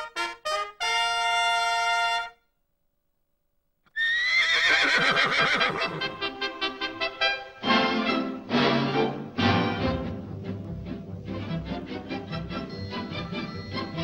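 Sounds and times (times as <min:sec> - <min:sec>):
trumpet fanfare: 0:00.0 - 0:02.4.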